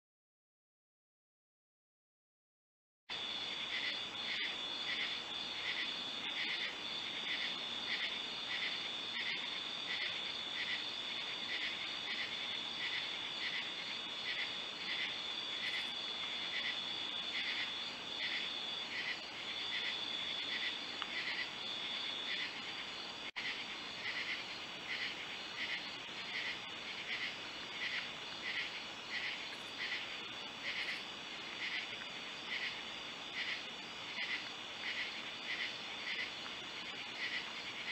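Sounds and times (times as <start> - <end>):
insect pulsing chirp: 3.1 - 37.9.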